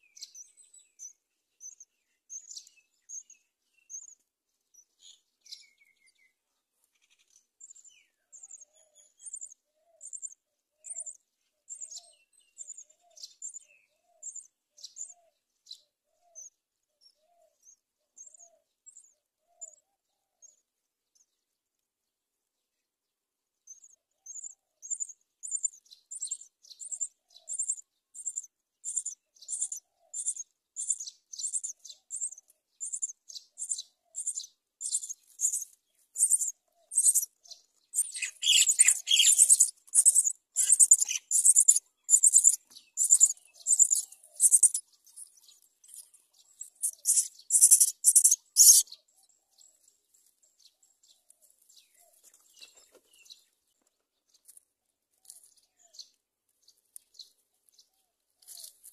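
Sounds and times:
nestlings cheeping: 36.2s - 37.3s, 38.0s - 44.8s, 46.8s - 48.8s.

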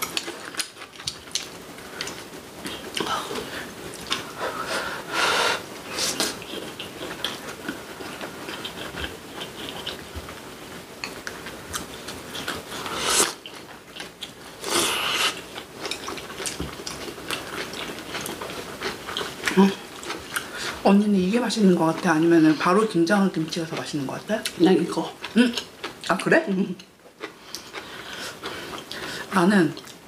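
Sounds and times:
wet chewing: 3.9s - 4.4s, 6.1s - 10.2s, 11.0s - 20.8s, 26.8s - 29.1s.

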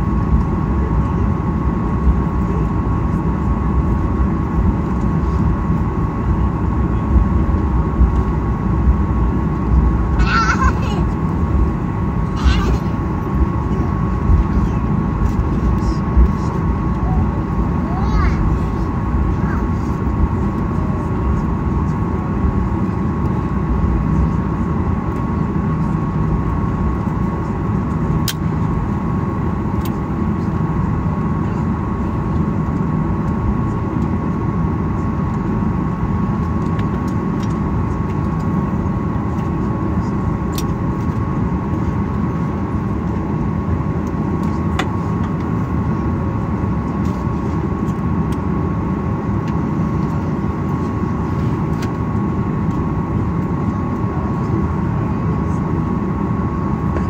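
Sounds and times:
jet engine cabin rumble: 0.0s - 57.0s
sharp clicks in cabin: 27.9s - 28.6s, 29.8s - 30.0s, 36.4s - 38.5s, 40.5s - 41.3s, 44.0s - 45.5s, 50.8s - 52.0s.

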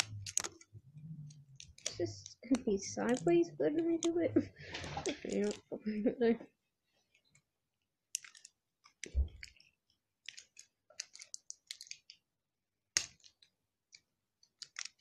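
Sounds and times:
plastic packaging crackling: 0.0s - 6.0s, 8.1s - 12.2s.

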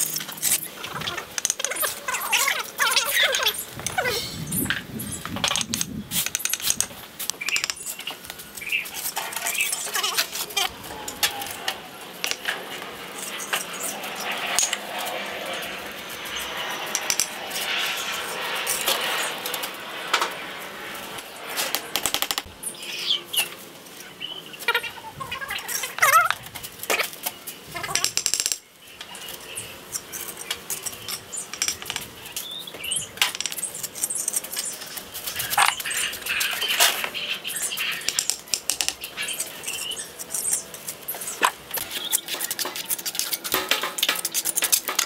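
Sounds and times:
trowel scraping mortar: 39.3s - 45.0s.

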